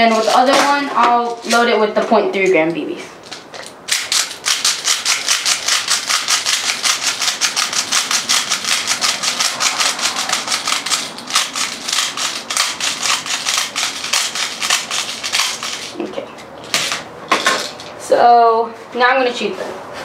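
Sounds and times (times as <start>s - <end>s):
plastic pellets rattling: 3.9s - 16.0s.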